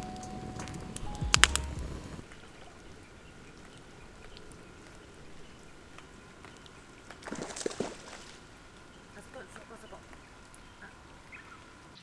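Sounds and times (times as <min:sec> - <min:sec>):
faint steady high tone: 0:00.0 - 0:03.3
bird calls: 0:00.0 - 0:12.0
faint lapping water: 0:02.2 - 0:12.0.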